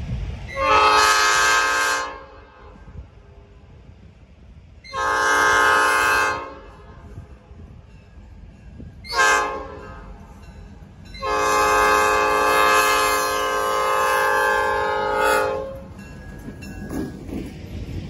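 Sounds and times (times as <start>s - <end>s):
locomotive engine and wheels rumble: 0.0s - 18.0s
locomotive air horn blasts: 0.5s - 2.9s, 4.9s - 7.1s, 9.1s - 10.2s, 11.2s - 15.9s.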